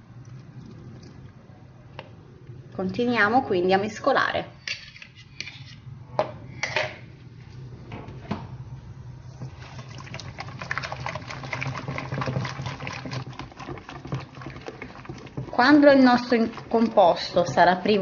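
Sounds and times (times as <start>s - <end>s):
whisk beating batter: 9.5s - 17.7s
whisk knocking on bowl: 10.7s - 17.0s.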